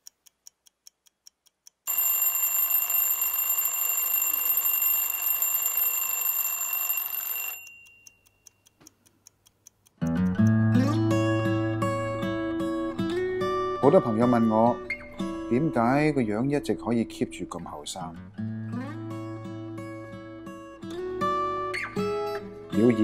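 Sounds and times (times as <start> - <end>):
clock ticking: 0.0 - 2.5, 7.0 - 10.6
alarm clock ringing: 1.9 - 8.2
acoustic guitar music: 10.0 - 15.8, 18.2 - 23.0.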